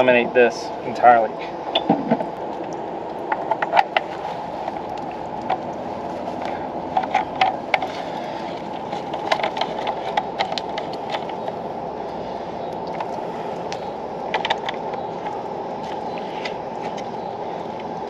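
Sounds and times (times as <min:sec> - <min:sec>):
steady background noise: 0:00.0 - 0:18.0
hose fitting clicking and knocking: 0:08.8 - 0:11.6.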